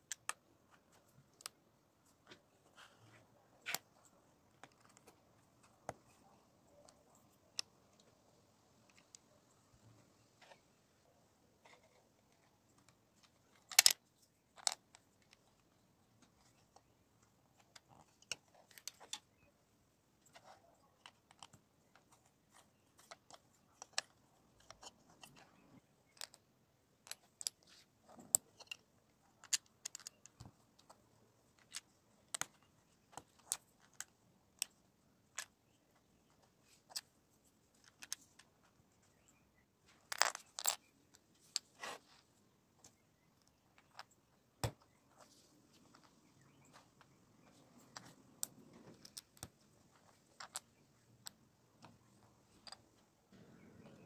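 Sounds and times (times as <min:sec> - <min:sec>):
plastic bricks clicking together: 0:13.2 - 0:15.4, 0:23.0 - 0:26.4, 0:29.4 - 0:31.0, 0:40.1 - 0:41.6.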